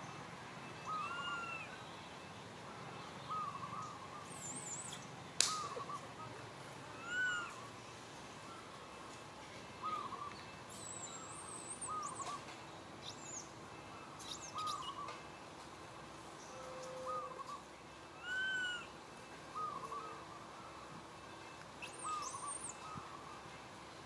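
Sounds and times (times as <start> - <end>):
soft hooting bird call: 0.9 - 1.8, 5.5 - 6.4, 7.0 - 7.7, 16.5 - 17.6, 18.2 - 20.8.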